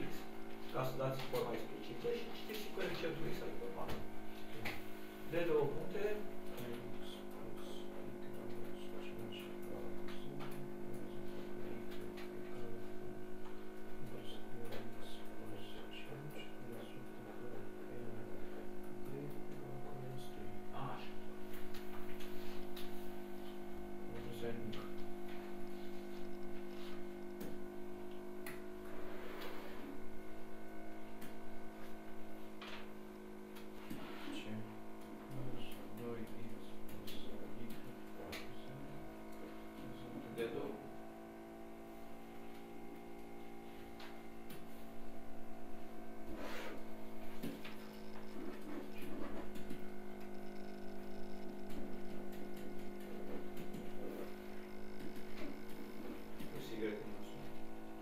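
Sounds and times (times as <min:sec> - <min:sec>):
steady electrical hum: 0:00.0 - 0:58.0.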